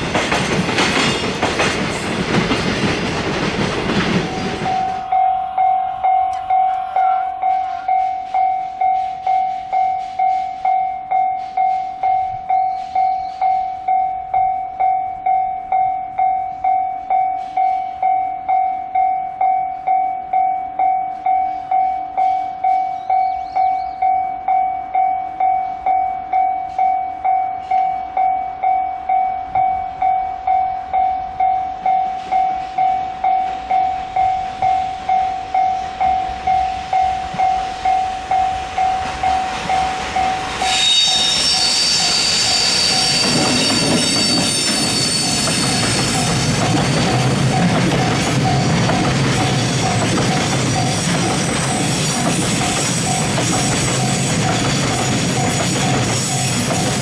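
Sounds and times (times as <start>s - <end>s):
train wheels clicking on rail joints: 0.0s - 5.2s, 20.3s - 57.0s
level crossing warning bell: 3.9s - 57.0s.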